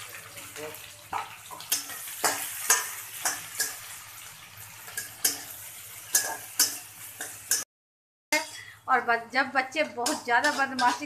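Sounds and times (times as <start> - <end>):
onions sizzling in oil: 0.0 - 7.6
spatula scraping a pan: 4.8 - 7.6, 8.4 - 8.8, 10.0 - 11.0.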